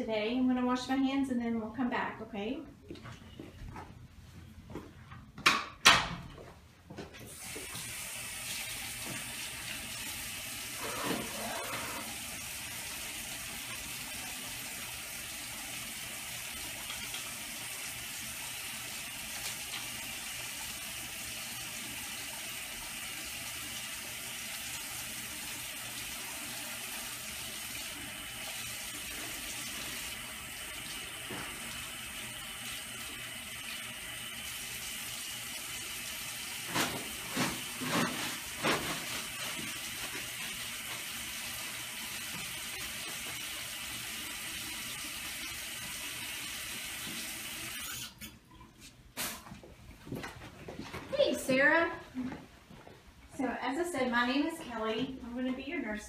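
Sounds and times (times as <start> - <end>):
hands washing under tap: 7.3 - 21.1, 21.8 - 50.0
water running into sink: 7.3 - 48.3.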